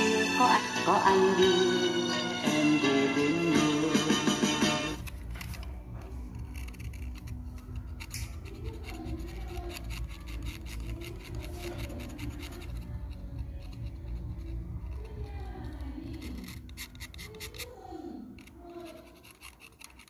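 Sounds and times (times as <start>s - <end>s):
razor blade scraping metal: 4.9s - 20.0s.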